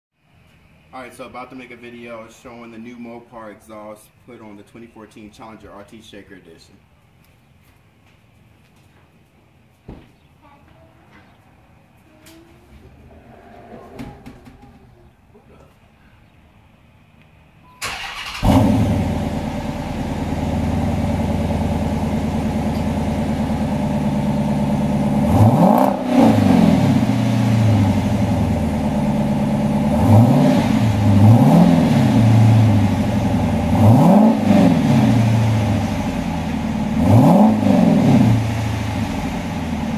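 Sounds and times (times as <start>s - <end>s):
car engine cranking and starting: 17.8s - 39.9s
car engine idling: 17.8s - 39.9s
car engine revving: 17.8s - 39.9s.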